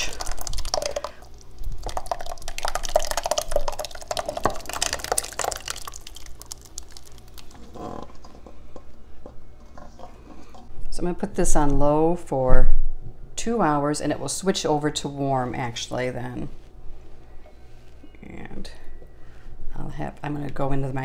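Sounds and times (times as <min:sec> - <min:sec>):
thick soup pouring and splashing: 0:00.0 - 0:08.3.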